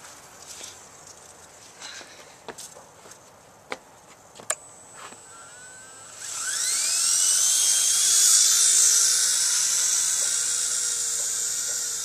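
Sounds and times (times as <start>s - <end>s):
toy helicopter motor whine: 4.5s - 12.0s
helicopter rotor noise: 4.8s - 12.0s.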